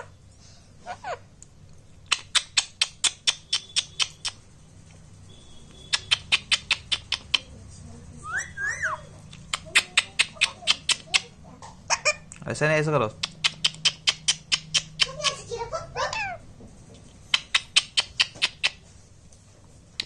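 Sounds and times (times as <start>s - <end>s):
sharp mouth clicks: 1.4s - 4.5s, 5.9s - 7.5s, 9.3s - 11.3s, 13.2s - 15.2s, 17.0s - 18.8s
parakeet gliding chirp: 2.2s - 12.3s.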